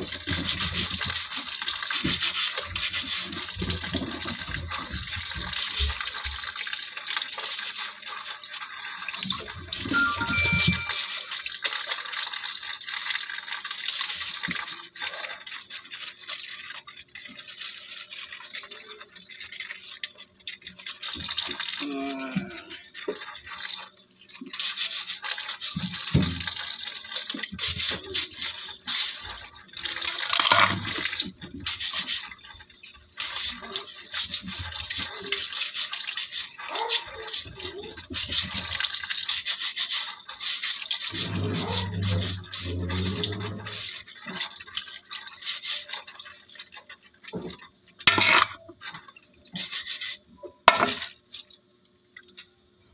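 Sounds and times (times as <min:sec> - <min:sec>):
tap water splashing into sink: 0:00.0 - 0:07.7, 0:08.4 - 0:21.8, 0:22.4 - 0:39.5, 0:40.2 - 0:49.8, 0:50.7 - 0:51.6
brush scrubbing crab shell: 0:33.3 - 0:44.1, 0:45.4 - 0:46.0, 0:49.6 - 0:50.2.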